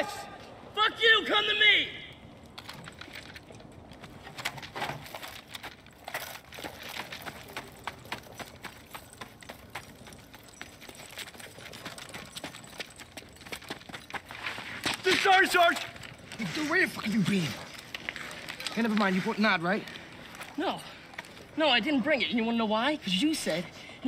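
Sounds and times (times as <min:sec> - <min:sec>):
gear rattling and jingling: 0:02.3 - 0:23.4
boots running on dirt: 0:05.1 - 0:19.2.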